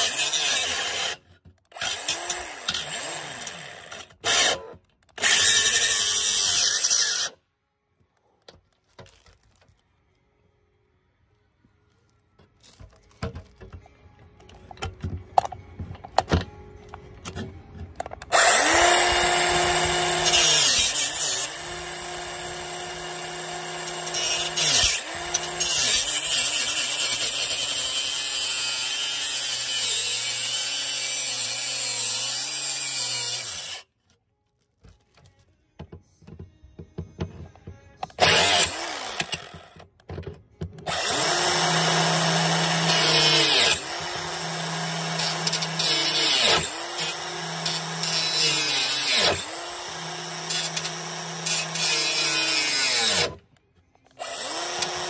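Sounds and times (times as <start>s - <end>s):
circular saw cutting: 0.0s - 1.2s, 5.2s - 7.4s, 18.3s - 33.9s, 38.2s - 39.6s, 40.9s - 53.4s, 54.2s - 55.0s.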